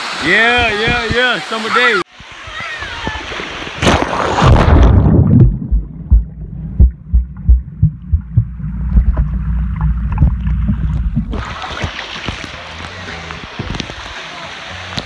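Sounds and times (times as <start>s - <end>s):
water thumps and handling: 3.8s - 14.1s
muffled underwater rumble: 4.5s - 11.6s.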